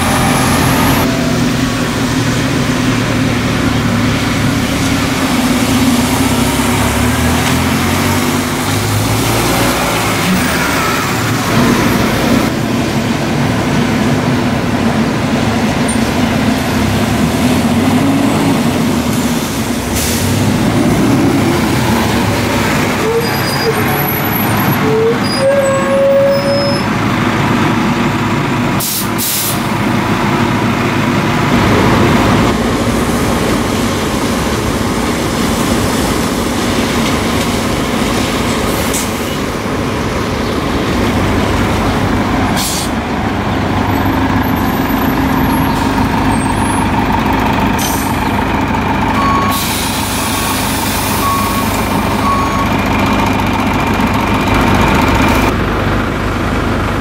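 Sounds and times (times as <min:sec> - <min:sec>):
bus engine pulling away: 0:00.0 - 0:57.0
air brake hiss: 0:20.0 - 0:20.4, 0:28.8 - 0:29.7, 0:42.6 - 0:43.0, 0:49.5 - 0:51.2.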